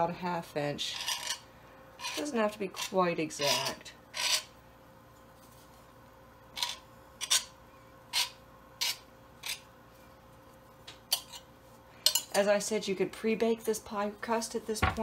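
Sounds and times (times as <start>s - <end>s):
knife scraping pie dough: 0.8s - 4.6s, 6.5s - 9.7s.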